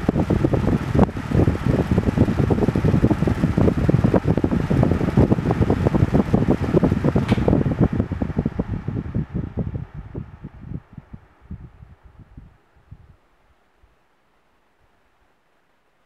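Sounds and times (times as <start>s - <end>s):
fan air flutter: 0.0s - 16.0s
sharp click: 7.2s - 7.6s.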